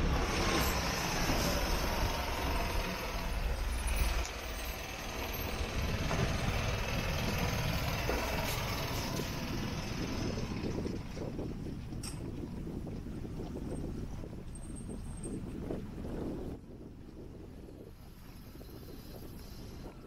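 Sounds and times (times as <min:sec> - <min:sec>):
street noise: 0:00.0 - 0:12.2
heavy vehicle engine rumble: 0:00.0 - 0:12.9.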